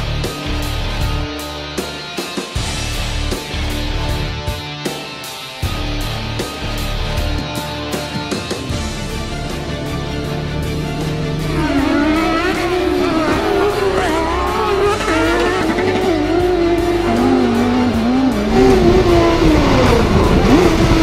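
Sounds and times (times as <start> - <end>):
background music: 0.0 - 21.0
race car engines revving: 8.7 - 21.0.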